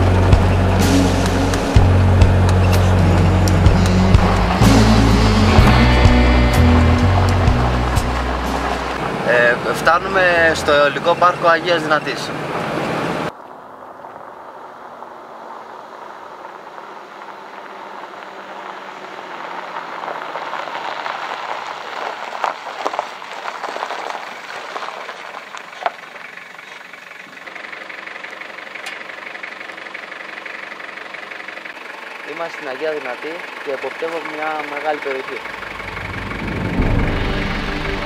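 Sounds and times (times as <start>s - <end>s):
truck engine: 0.0s - 38.0s
tyres on gravel: 0.0s - 38.0s
gravel clicks: 13.3s - 30.9s.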